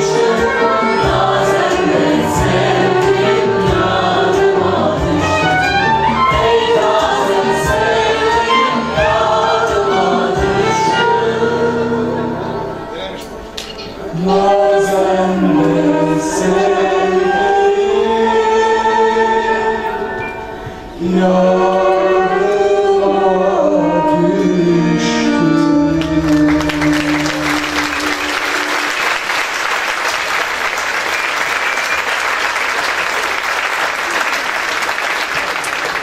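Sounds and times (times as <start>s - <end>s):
man and woman singing: 0.0s - 12.6s, 14.0s - 20.1s, 20.9s - 29.2s
live band and choir: 0.0s - 36.0s
audience applause: 26.2s - 36.0s.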